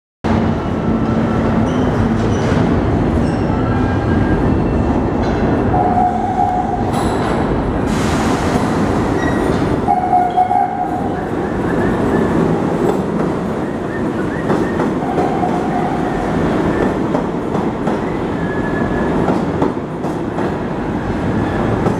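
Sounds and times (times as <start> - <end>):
subway train rumbling: 0.2 - 21.9.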